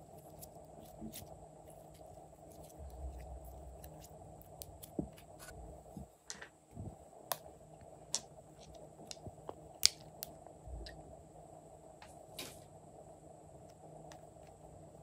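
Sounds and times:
slime squishing: 0:00.0 - 0:05.5.

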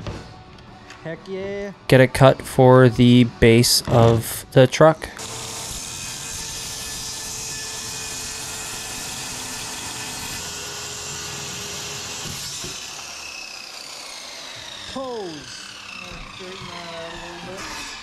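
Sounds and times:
circular saw cutting plywood: 0:04.8 - 0:18.0.

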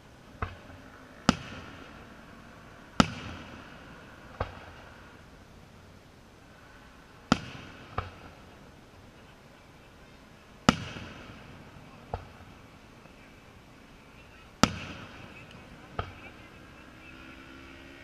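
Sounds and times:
distant firework shells bursting: 0:00.4 - 0:02.0, 0:02.9 - 0:05.0, 0:07.2 - 0:08.8, 0:10.6 - 0:12.8, 0:14.5 - 0:16.3.

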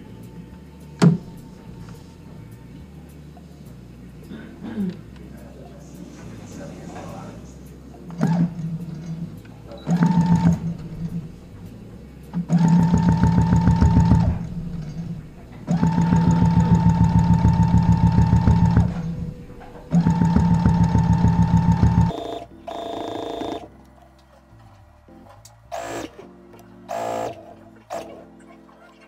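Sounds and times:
sewing machine stitching: 0:09.8 - 0:11.2, 0:12.4 - 0:23.7, 0:26.9 - 0:28.2.

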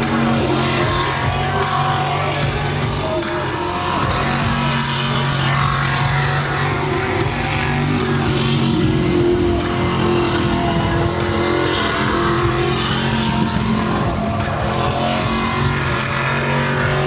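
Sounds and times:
boat engine at high revs: 0:00.0 - 0:17.0
music playing: 0:00.0 - 0:17.0.

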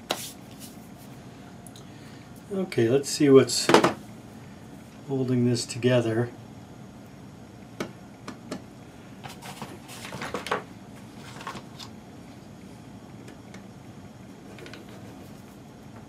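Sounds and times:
low background hum: 0:00.0 - 0:16.0
scraping and rubbing on plastic: 0:14.4 - 0:15.6.

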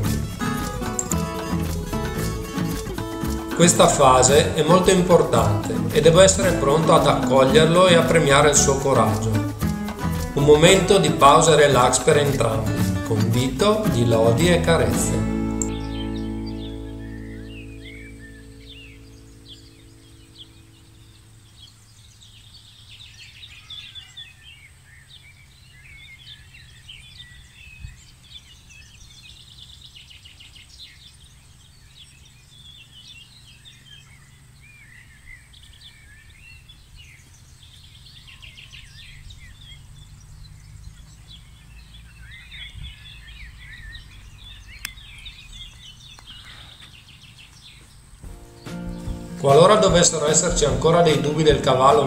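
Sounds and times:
birds chirping and singing: 0:00.0 - 0:52.0.

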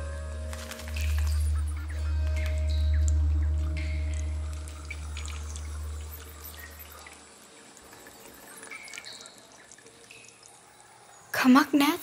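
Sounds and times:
deep low drone: 0:00.0 - 0:07.2
water drops dripping: 0:00.0 - 0:11.9.

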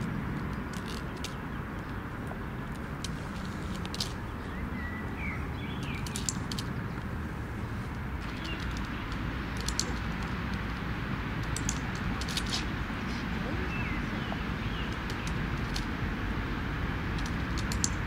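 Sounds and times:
birds chirping: 0:00.0 - 0:16.5
low outdoor rumble: 0:00.0 - 0:18.0
hand clicker clicking: 0:08.4 - 0:10.6, 0:11.4 - 0:12.5, 0:17.2 - 0:18.0.

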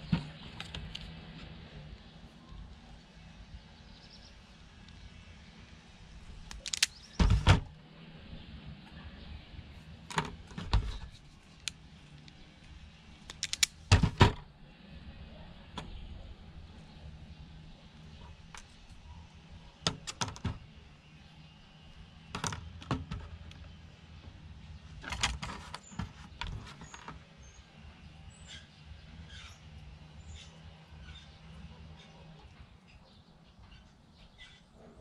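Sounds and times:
tool and wire handling clicks: 0:06.4 - 0:07.5, 0:10.1 - 0:14.2, 0:19.8 - 0:20.6
wire stripper clacking: 0:06.5 - 0:07.3, 0:13.3 - 0:14.2.

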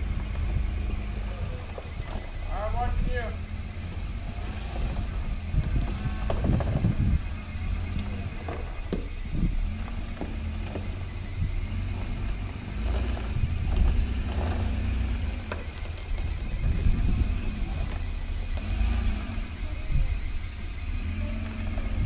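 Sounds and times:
knocks and clunks: 0:00.0 - 0:20.1
off-road vehicle engine rumbling: 0:00.0 - 0:22.0.

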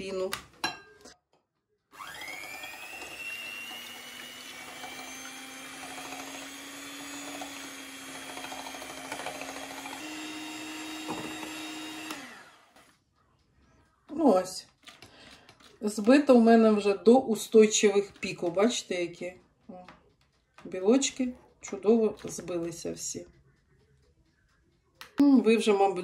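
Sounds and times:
electric hand mixer whining: 0:01.9 - 0:12.9.

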